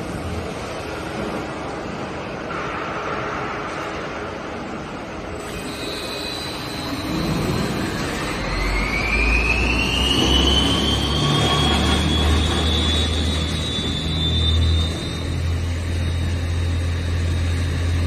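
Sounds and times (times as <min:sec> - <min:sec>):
low machine hum: 0:00.0 - 0:18.0
lathe whine rising: 0:05.2 - 0:18.0.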